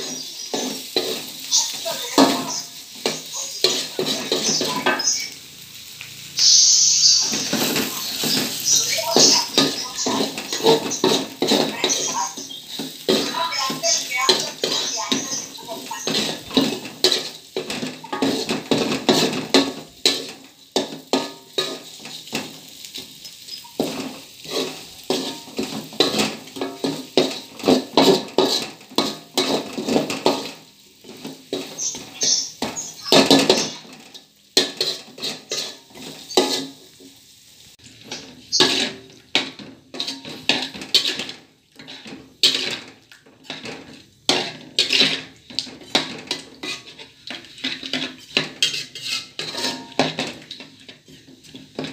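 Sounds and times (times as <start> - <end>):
metal spatula scraping wok: 0.0 - 51.9
sizzling: 0.0 - 51.9.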